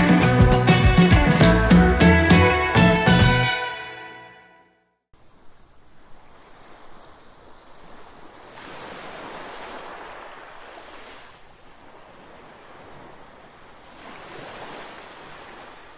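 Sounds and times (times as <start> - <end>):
wave breaking and washing: 5.2 - 15.9.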